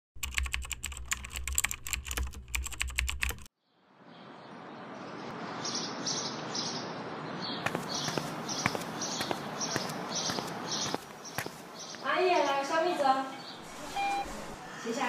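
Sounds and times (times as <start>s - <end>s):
birds chirping: 3.7s - 15.0s
sharp taps: 7.6s - 12.0s.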